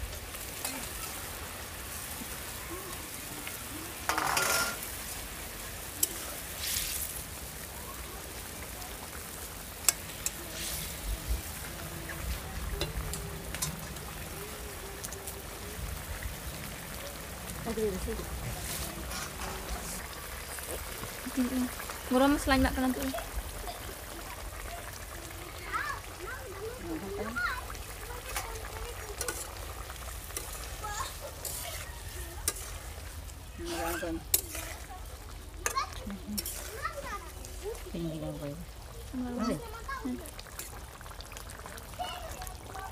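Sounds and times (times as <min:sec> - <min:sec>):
curry bubbling in a pan: 0:00.0 - 0:42.9
metal spatula clinking on pan: 0:04.1 - 0:04.8, 0:33.7 - 0:34.8
metal spatula scraping pot: 0:04.1 - 0:04.9, 0:18.6 - 0:20.0, 0:29.2 - 0:29.6, 0:30.2 - 0:35.0, 0:36.4 - 0:37.0.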